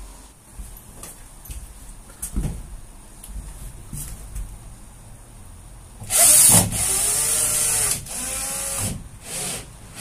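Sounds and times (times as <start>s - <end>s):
cordless drill driving screws: 6.1s - 10.0s.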